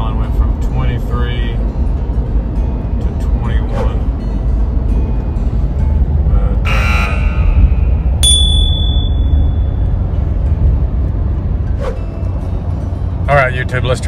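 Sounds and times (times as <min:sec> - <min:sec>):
vehicle cab rumble: 0:00.0 - 0:14.0
sharp hit with ringing tone: 0:08.2 - 0:09.9.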